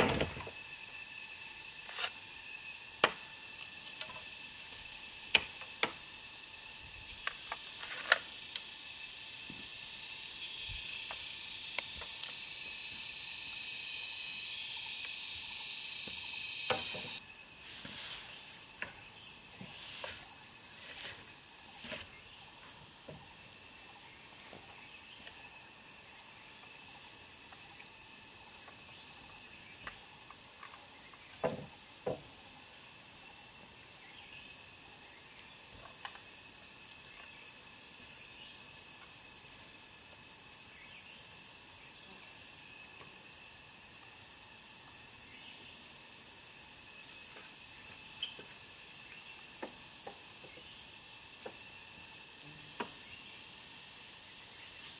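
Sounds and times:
insect chorus: 0:00.0 - 0:54.9
hollow knocks of bamboo poles: 0:03.0 - 0:03.2, 0:31.4 - 0:32.4, 0:49.6 - 0:50.7, 0:52.8 - 0:53.0.

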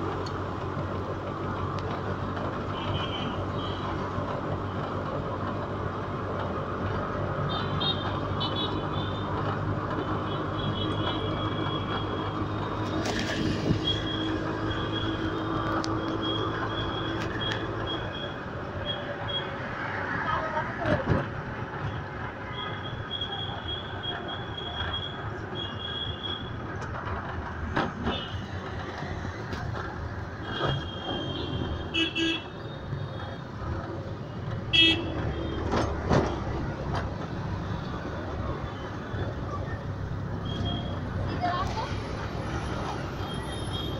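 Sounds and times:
engine drone and road noise: 0:00.0 - 0:43.9
vehicle horn toot: 0:34.7 - 0:35.1.

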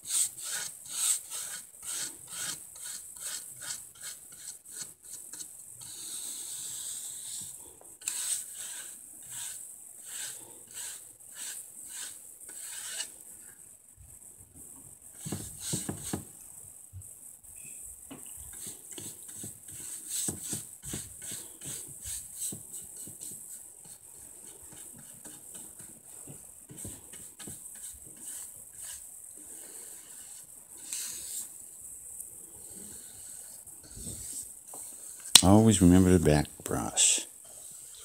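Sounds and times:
paintbrush swishing on wood: 0:18.5 - 0:31.7, 0:32.6 - 0:36.2, 0:36.9 - 0:38.0.

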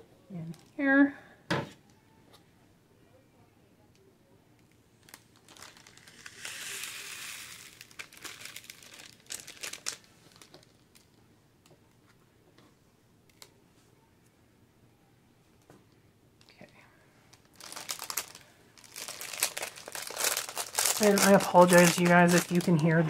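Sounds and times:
sharp crackles: 0:05.0 - 0:11.1, 0:17.4 - 0:22.8
plastic bag crinkling: 0:05.0 - 0:11.2, 0:17.3 - 0:23.0.

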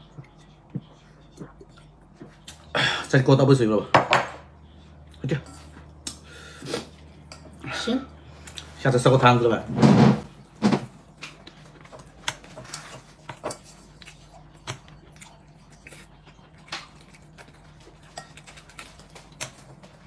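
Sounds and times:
quiet chewing: 0:11.1 - 0:20.0.

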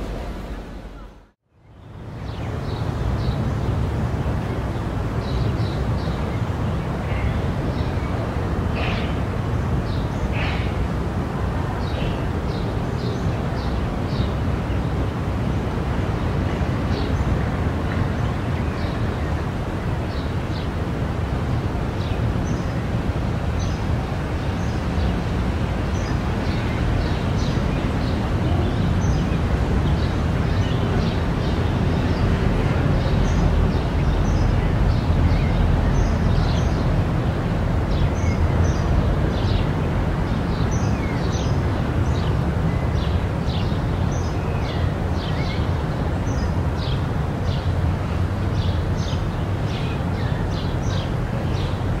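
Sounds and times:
low background rumble: 0:00.0 - 0:01.4.

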